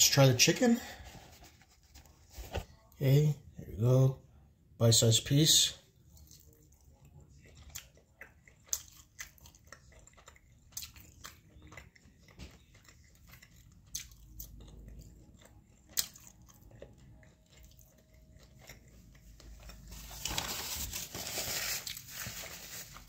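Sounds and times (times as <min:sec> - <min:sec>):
person chewing: 0:06.0 - 0:23.0.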